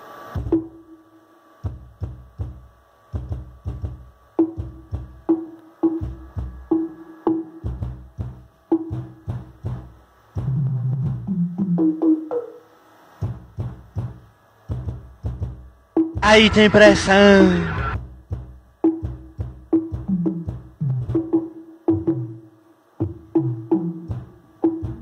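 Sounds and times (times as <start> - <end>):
electronic dance music with heavy bass: 16.2 - 18.0.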